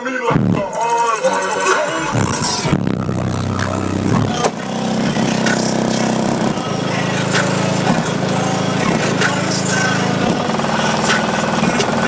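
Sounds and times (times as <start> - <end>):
deep subwoofer bass notes: 0.3 - 0.7, 2.1 - 12.0
buzzing rattle: 10.2 - 12.0.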